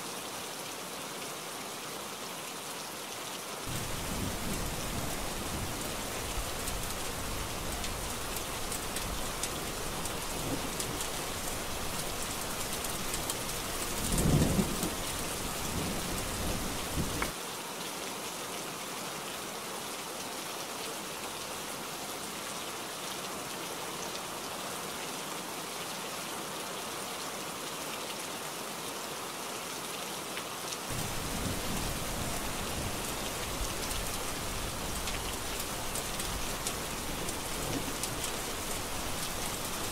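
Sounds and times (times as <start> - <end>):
heavy rain falling: 3.5 - 18.9, 30.2 - 39.9
thunder rumbling low: 3.7 - 8.2, 30.9 - 39.9.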